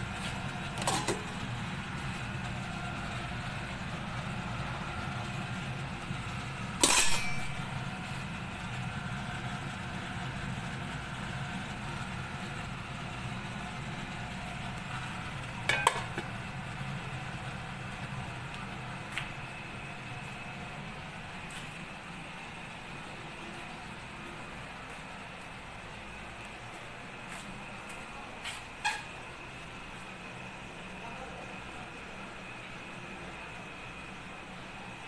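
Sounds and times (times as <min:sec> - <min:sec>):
steady low hum: 0:00.0 - 0:35.0
pot lid clanking on metal pot: 0:06.8 - 0:07.6, 0:15.7 - 0:16.3.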